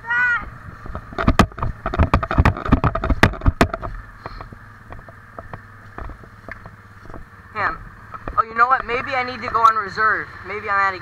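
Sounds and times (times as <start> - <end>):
atv engine humming: 0.0 - 11.0
sharp knocks and rattles: 0.8 - 7.3, 8.0 - 9.8.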